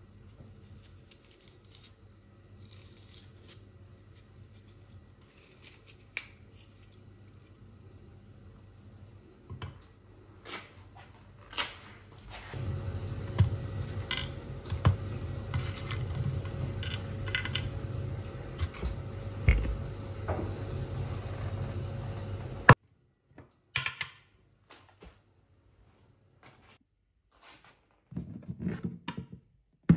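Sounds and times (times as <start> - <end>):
steady low hum: 0.0 - 22.8.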